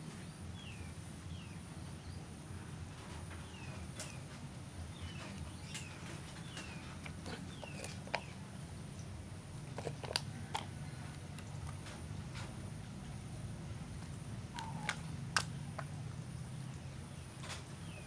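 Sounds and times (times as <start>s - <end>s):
low outdoor rumble: 0.0s - 18.0s
bird chirping: 0.2s - 2.4s, 3.1s - 9.2s, 14.5s - 15.8s, 16.4s - 18.0s.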